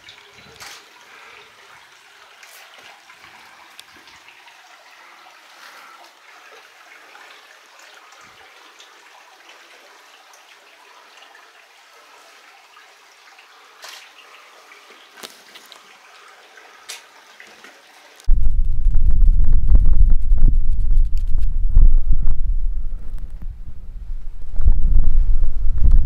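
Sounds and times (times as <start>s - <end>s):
water trickling over rock: 0.0s - 19.1s.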